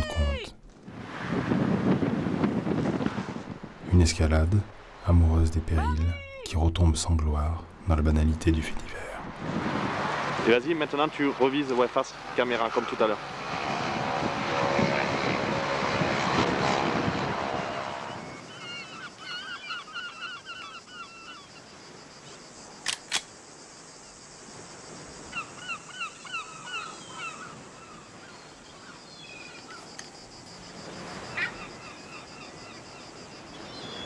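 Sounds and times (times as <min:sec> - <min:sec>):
loud engine drone: 0:09.8 - 0:18.5
birds calling: 0:17.7 - 0:21.9, 0:25.2 - 0:30.1, 0:31.2 - 0:34.0.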